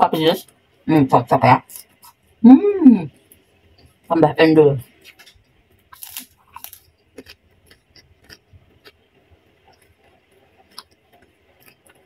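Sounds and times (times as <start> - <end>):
crunching crackers being chewed: 5.0 - 12.0.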